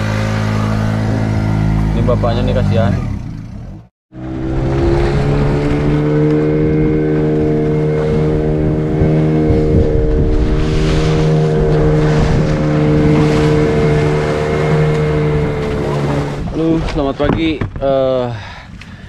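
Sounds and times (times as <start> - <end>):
boat engine running: 0.0 - 17.8.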